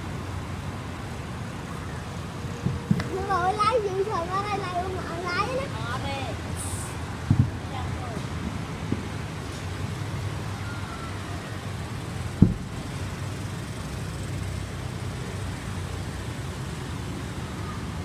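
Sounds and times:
road traffic: 0:00.0 - 0:18.0
sharp thump: 0:12.4 - 0:12.8.

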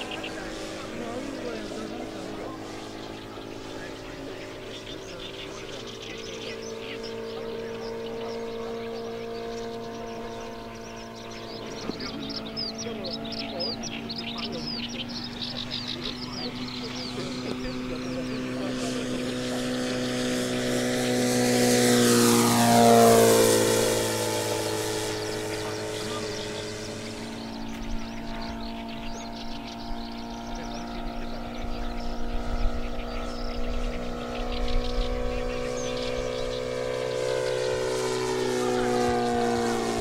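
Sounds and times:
model plane engine droning: 0:00.0 - 0:40.0
rough low rumble with knocks: 0:04.4 - 0:19.8.

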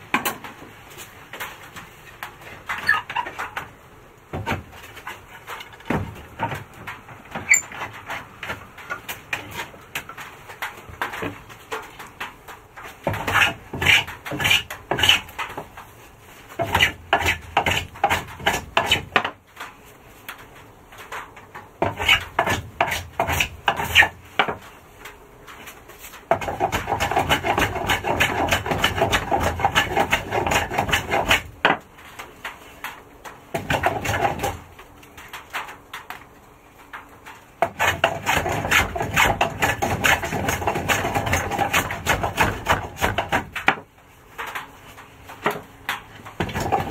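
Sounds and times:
hand tool scraping wood: 0:02.4 - 0:03.6, 0:07.4 - 0:09.8, 0:13.0 - 0:15.7, 0:16.5 - 0:19.4, 0:21.8 - 0:24.6, 0:25.6 - 0:31.8, 0:33.6 - 0:34.6, 0:37.6 - 0:43.8, 0:45.4 - 0:46.9.

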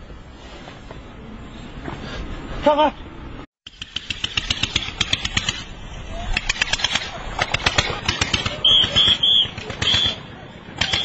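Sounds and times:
shrill whistle blasts: 0:08.6 - 0:10.2.

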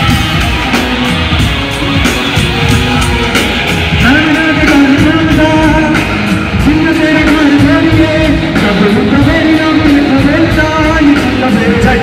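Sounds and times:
song with driving beat: 0:00.0 - 0:12.0.

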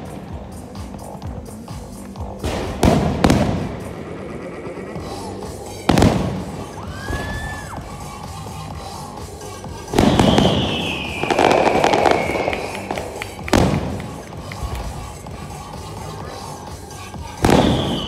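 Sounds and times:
fireworks bursting: 0:00.0 - 0:18.0
fireworks crackling: 0:00.0 - 0:18.0
show music: 0:00.0 - 0:18.0.

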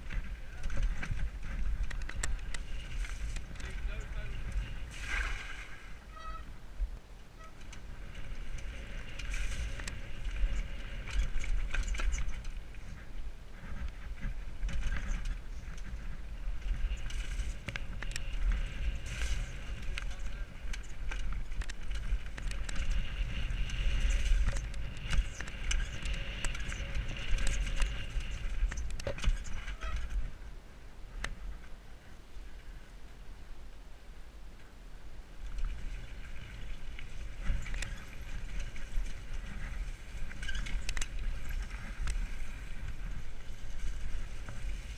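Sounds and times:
bike rattling and knocking: 0:00.0 - 0:05.0, 0:07.6 - 0:30.3, 0:35.5 - 0:44.9
wind buffeting microphone: 0:00.0 - 0:32.9.

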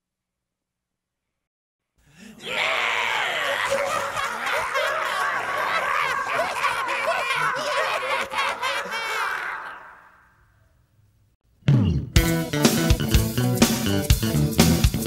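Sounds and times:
many voices laughing and shrieking: 0:02.3 - 0:10.4.

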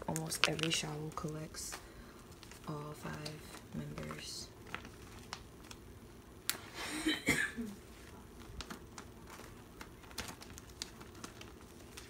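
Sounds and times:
plastic pages rustling: 0:00.0 - 0:05.9, 0:07.9 - 0:12.0.

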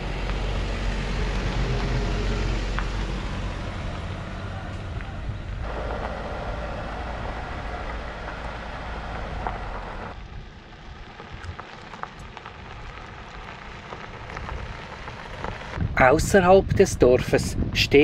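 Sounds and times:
gravel crunching under tyres: 0:00.0 - 0:17.2
vehicle engine and tyres rumbling: 0:00.0 - 0:18.0.

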